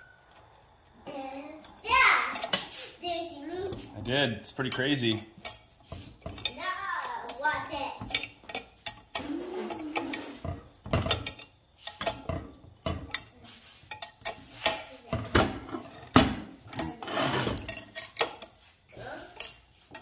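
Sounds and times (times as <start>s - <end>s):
wrench clinking against metal fittings: 2.3s - 2.8s, 4.5s - 7.4s, 8.0s - 9.3s, 10.0s - 12.4s, 15.9s - 18.5s, 19.3s - 20.0s.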